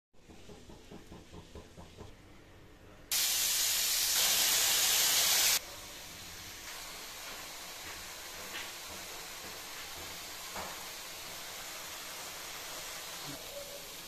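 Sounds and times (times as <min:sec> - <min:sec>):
vegetables sizzling in hot oil: 0:03.1 - 0:14.0.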